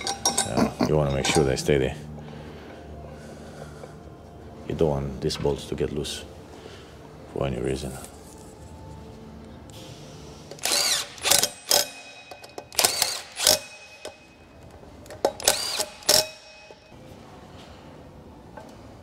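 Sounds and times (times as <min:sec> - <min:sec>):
ratchet tightening bolts: 0:00.0 - 0:01.7, 0:10.5 - 0:14.3, 0:15.1 - 0:16.9.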